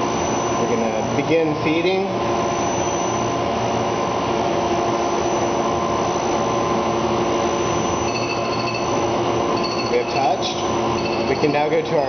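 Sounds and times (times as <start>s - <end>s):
grinding machine whirring: 4.9s - 12.0s.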